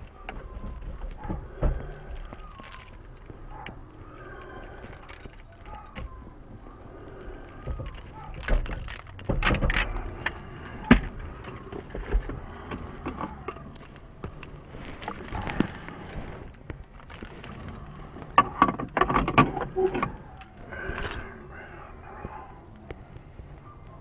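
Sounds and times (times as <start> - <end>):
knocks and clunks: 0.0 - 3.8, 7.5 - 16.8, 18.1 - 20.2
faint voices: 19.6 - 24.0.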